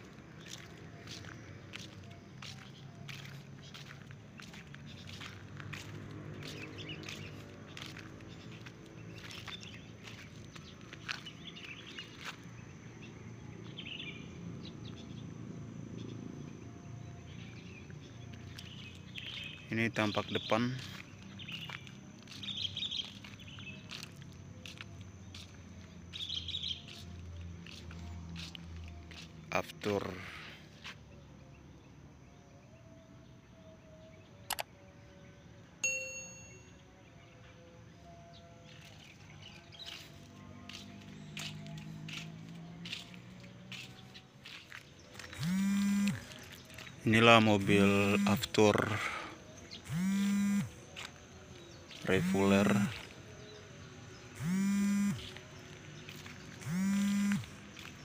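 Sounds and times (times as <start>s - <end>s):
bird chirps: 0.4s - 12.4s, 17.0s - 30.1s
metallic ding: 35.8s - 36.7s.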